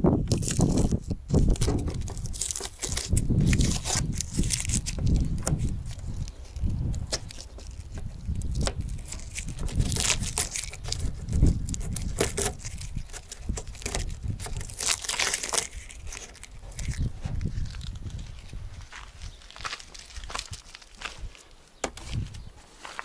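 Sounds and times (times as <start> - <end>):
masking tape peeling: 0.3 - 18.6
paper crinkling: 0.3 - 23.0.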